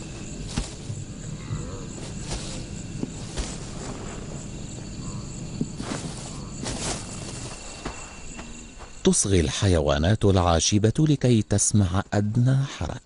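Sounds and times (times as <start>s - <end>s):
crickets trilling: 0.0s - 13.0s
dry grass crackling under paws: 5.6s - 8.3s.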